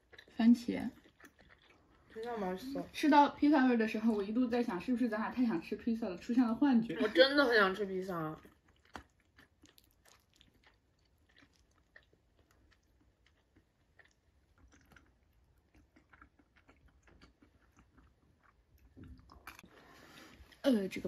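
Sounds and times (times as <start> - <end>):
person chewing food: 0.0 - 2.9, 8.3 - 20.6.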